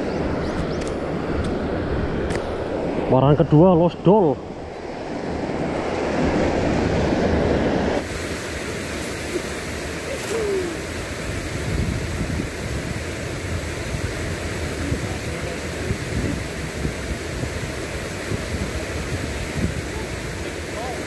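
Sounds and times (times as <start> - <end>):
river water rushing over weir: 3.9 - 21.0
wind buffeting microphone: 10.0 - 21.0.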